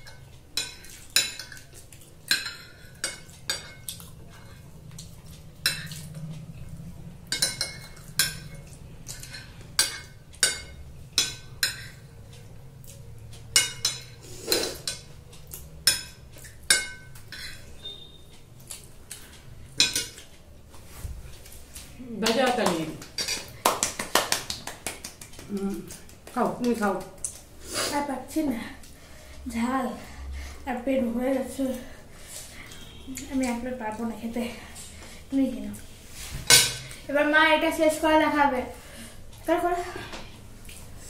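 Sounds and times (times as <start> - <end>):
cutlery clinking on glass plates: 0.0 - 4.6, 13.5 - 15.1, 15.8 - 18.1, 19.8 - 20.3, 22.2 - 23.6.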